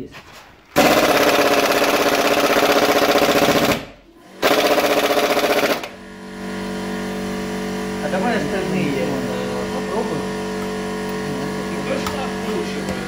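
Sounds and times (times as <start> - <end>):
air compressor humming: 0.0 - 13.0
pneumatic impact wrench hammering: 0.8 - 6.0.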